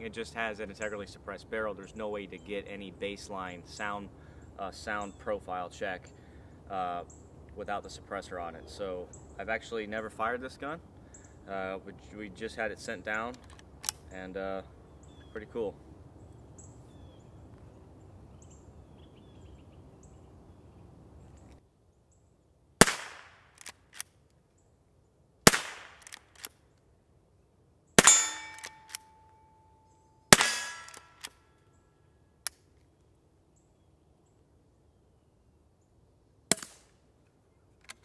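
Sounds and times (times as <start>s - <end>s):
rifle shots: 22.8s - 23.7s, 25.4s - 26.5s, 28.0s - 29.0s, 30.3s - 31.3s
steady ringing tone: 28.0s - 30.9s.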